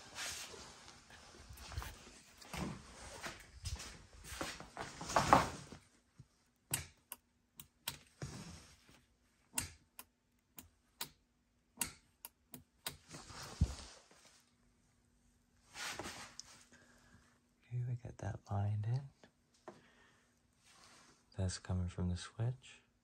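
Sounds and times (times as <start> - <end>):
rustling: 0.0 - 6.0.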